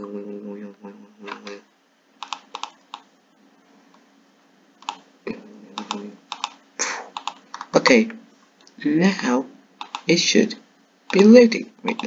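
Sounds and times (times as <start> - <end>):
low steady hum: 0.0 - 12.0
keyboard and mouse clicks: 2.2 - 3.1, 4.8 - 5.0, 5.8 - 7.8, 9.8 - 10.1.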